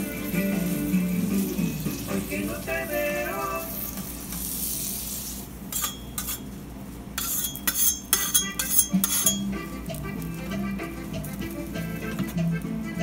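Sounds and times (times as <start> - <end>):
high sizzling hiss: 0.0 - 6.5
knives scraping roasting meat: 3.8 - 6.5, 7.2 - 10.6.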